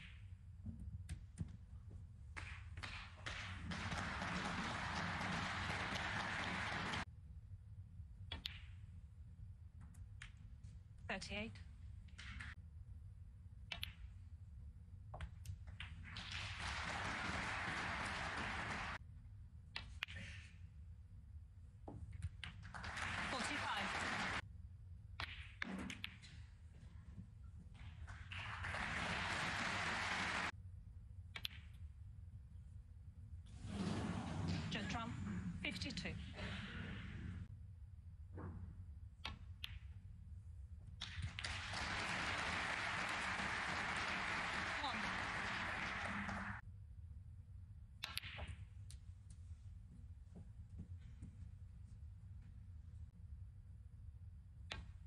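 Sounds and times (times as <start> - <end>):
audience applause: 3.4 - 7.1, 16.3 - 19.0, 22.7 - 24.4, 28.2 - 30.5, 41.3 - 46.6
snooker balls clicking: 48.0 - 48.6.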